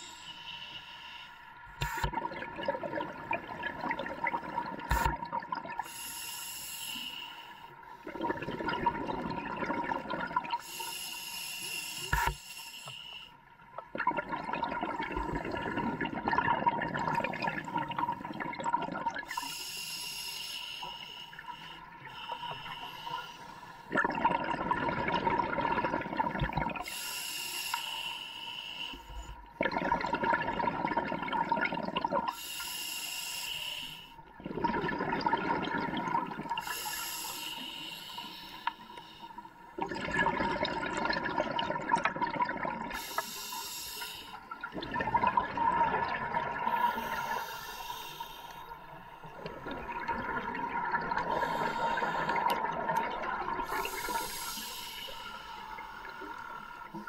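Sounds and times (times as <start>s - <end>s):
regulator hissing inhalation: 5.9s - 7.7s, 10.6s - 13.3s, 19.2s - 23.9s, 26.8s - 29.4s, 32.3s - 34.2s, 36.6s - 39.7s, 42.9s - 44.6s, 46.7s - 49.5s, 51.2s - 52.6s, 53.6s - 57.0s
bubbling exhaled air: 8.0s - 10.8s, 14.0s - 20.2s, 23.9s - 27.5s, 29.2s - 33.8s, 34.4s - 39.2s, 39.8s - 57.0s.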